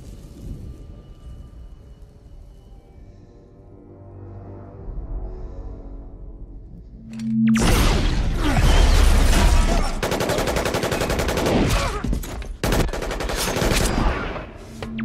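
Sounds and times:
scattered gunshots: 7.6s - 14.6s
automatic gunfire: 9.3s - 12.0s, 12.6s - 14.2s.

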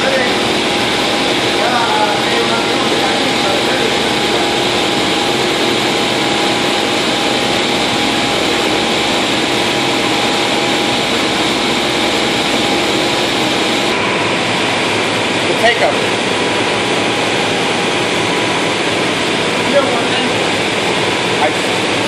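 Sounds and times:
knitting machine running: 0.0s - 14.0s
thin mechanical whine: 0.0s - 22.0s.

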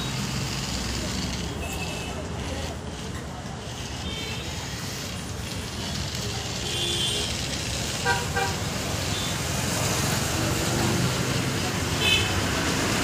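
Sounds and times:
road traffic noise: 0.0s - 13.0s
vehicle horn tooting: 6.6s - 7.3s.

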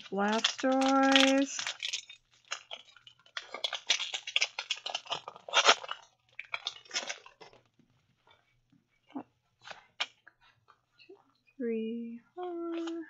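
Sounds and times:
foil wrapper crinkling and tearing: 0.0s - 7.7s.

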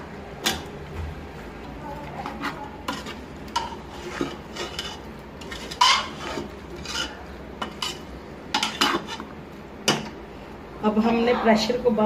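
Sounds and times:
metal spoon scraping a pot: 2.2s - 9.3s.

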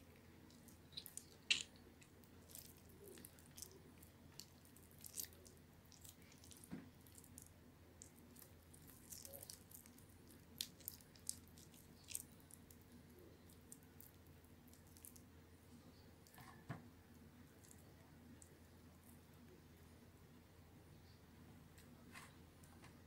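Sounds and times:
soap squishing: 0.5s - 12.8s.

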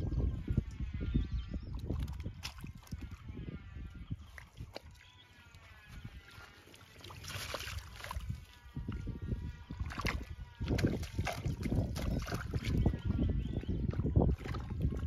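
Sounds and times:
faint bleating animal: 4.8s - 6.7s
net sloshing in water: 6.5s - 8.6s.

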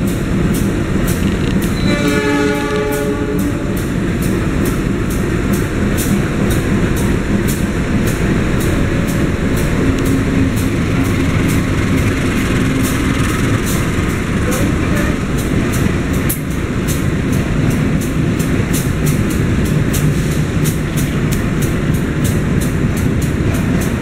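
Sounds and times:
locomotive engine rumble: 0.0s - 24.0s
train horn: 1.7s - 4.0s.

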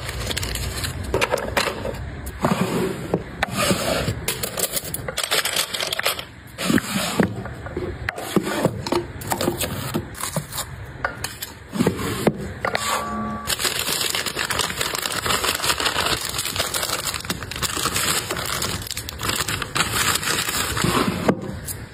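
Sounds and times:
packets rustling: 0.0s - 1.2s, 13.5s - 21.2s.

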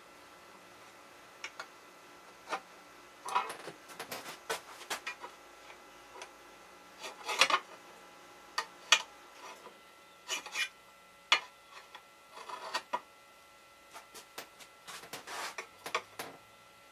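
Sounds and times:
caliper scratching metal plate: 7.0s - 7.7s, 8.8s - 13.0s, 14.9s - 16.1s.

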